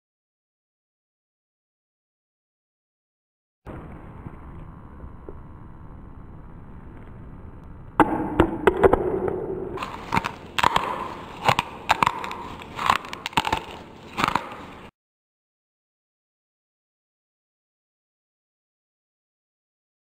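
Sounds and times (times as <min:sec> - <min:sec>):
rough crackling: 0:06.6 - 0:14.9
sharp cracks and crunches: 0:08.0 - 0:14.9.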